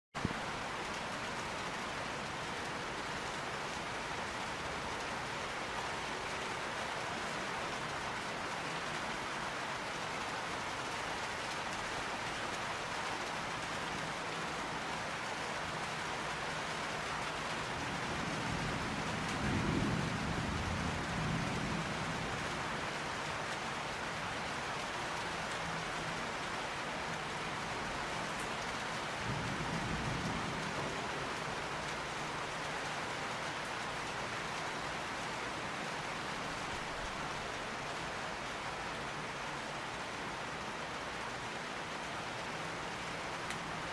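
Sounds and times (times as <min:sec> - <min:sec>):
steady rain falling: 0:00.2 - 0:43.9
low rolls of thunder: 0:17.8 - 0:22.5, 0:29.2 - 0:31.2.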